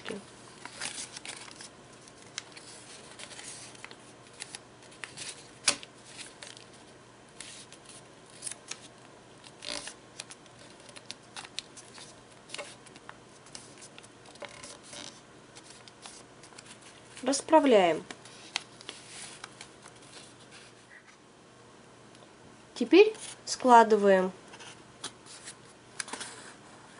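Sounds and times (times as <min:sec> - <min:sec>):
paper crackle: 0:00.0 - 0:17.4
paper rustling and creasing: 0:00.0 - 0:21.1, 0:24.5 - 0:26.6.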